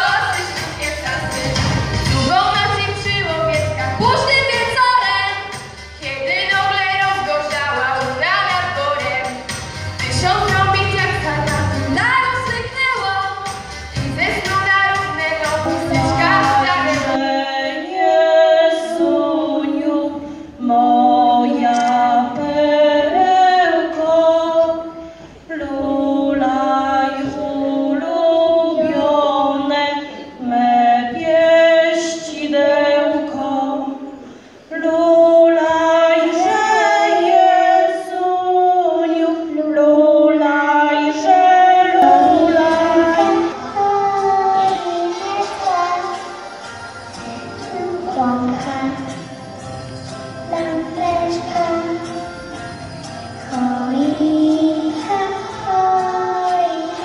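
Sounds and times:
woman and girl singing carol: 14.3 - 46.1.

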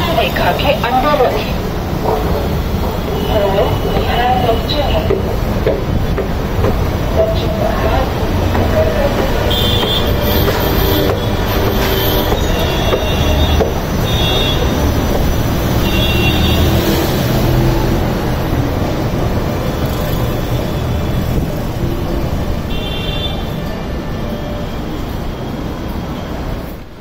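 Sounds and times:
metro train rumbling: 0.0 - 27.0
steel wheels squealing on rails: 2.4 - 6.1, 7.2 - 17.7.

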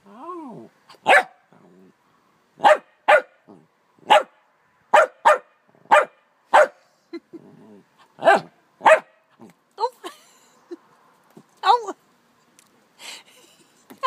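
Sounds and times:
dog barking: 1.0 - 1.4, 2.6 - 3.4, 4.0 - 4.3, 4.9 - 6.8, 8.2 - 9.2.

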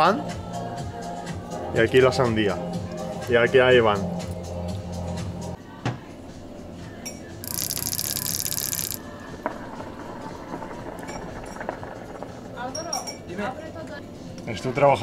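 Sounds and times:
hookah bubbling: 7.4 - 9.0.

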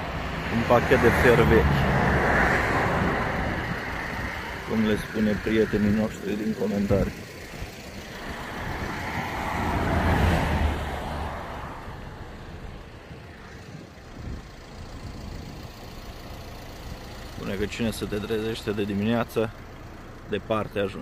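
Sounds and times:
vehicle passing by: 0.0 - 12.2.

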